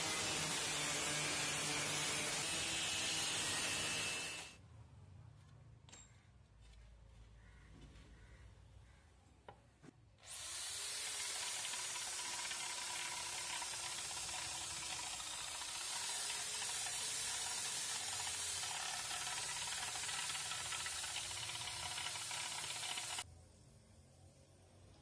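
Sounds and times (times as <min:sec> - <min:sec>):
electric drill boring: 0:00.0 - 0:04.6, 0:10.2 - 0:23.2.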